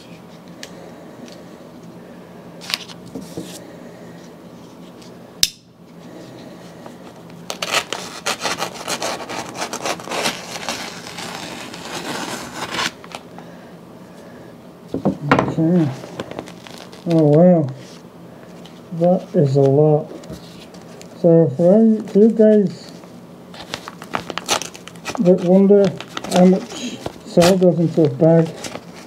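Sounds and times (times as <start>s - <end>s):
paper bag rasping: 7.5s - 13.3s, 15.8s - 18.0s, 23.6s - 29.0s.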